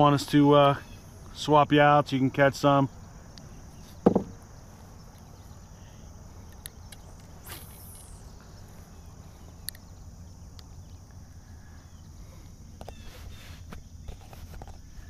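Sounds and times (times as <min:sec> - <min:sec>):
high-pitched insect chorus: 0:00.0 - 0:15.0
fishing rod cast whoosh: 0:07.4 - 0:08.1
low outdoor rumble: 0:08.0 - 0:14.1.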